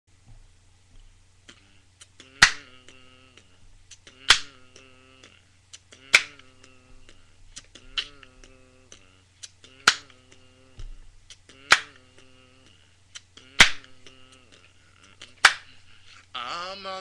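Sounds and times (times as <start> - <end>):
steady low hum: 0.1 - 17.0.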